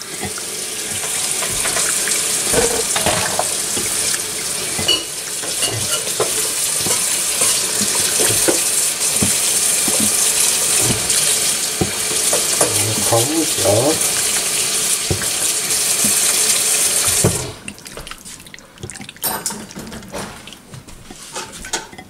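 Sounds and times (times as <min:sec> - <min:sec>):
wet squelching of kneaded chicken: 0:17.7 - 0:19.2.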